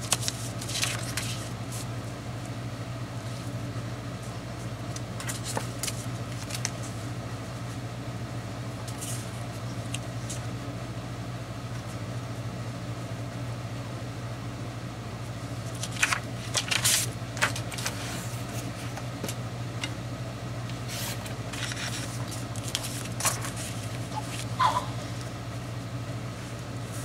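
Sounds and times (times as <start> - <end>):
paper rustling and sliding: 0.0 - 1.9, 5.2 - 7.0, 8.9 - 10.5, 15.7 - 19.4, 20.8 - 24.5
steady low hum: 0.0 - 27.0.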